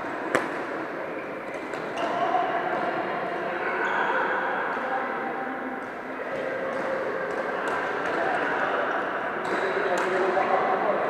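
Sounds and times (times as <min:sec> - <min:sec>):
murmur of distant voices: 0:00.0 - 0:11.0
rackets hitting shuttlecocks: 0:00.3 - 0:00.6.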